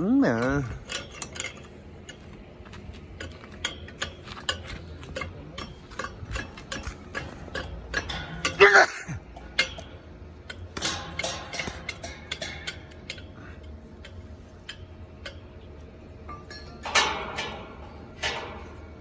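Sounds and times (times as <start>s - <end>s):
light metallic ticks and taps: 9.4s - 15.6s.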